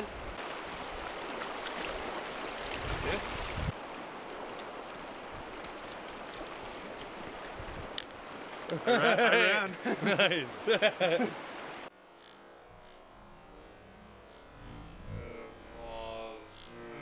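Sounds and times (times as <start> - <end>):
creek water flowing: 0.0 - 12.6
low rumble: 12.5 - 17.0.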